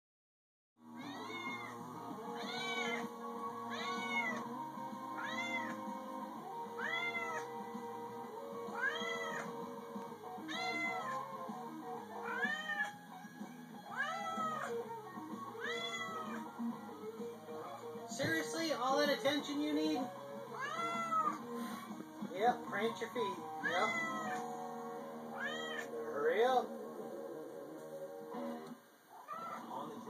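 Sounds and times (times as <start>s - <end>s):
cat meowing: 0.9s - 3.1s, 3.7s - 4.4s, 5.2s - 5.9s, 6.7s - 7.5s, 8.7s - 9.6s, 10.4s - 11.3s, 12.2s - 13.0s, 13.9s - 16.5s, 20.5s - 21.4s, 23.6s - 24.6s, 25.3s - 26.0s, 29.1s - 29.7s.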